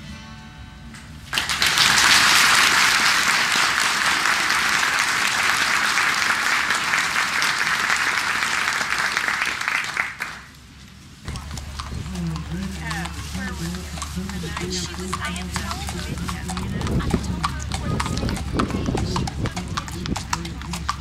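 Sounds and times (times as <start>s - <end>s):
audience applause: 1.3s - 10.6s.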